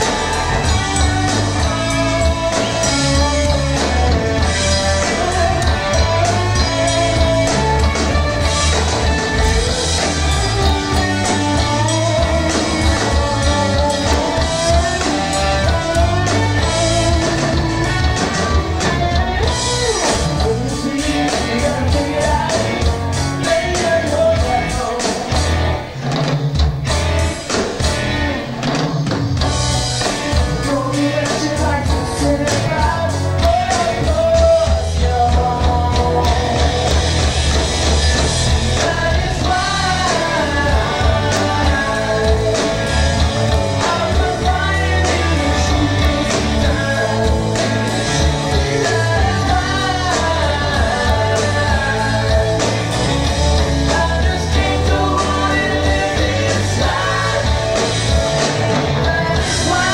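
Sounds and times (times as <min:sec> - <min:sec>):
person singing: 0:00.0 - 0:25.6, 0:30.4 - 0:37.3, 0:38.2 - 0:59.9
electric guitar: 0:00.0 - 0:59.9.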